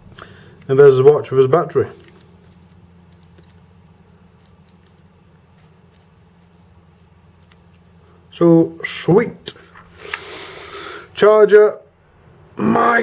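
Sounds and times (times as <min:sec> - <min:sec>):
steady low hum: 0:00.0 - 0:13.0
hands handling small device: 0:02.0 - 0:08.0.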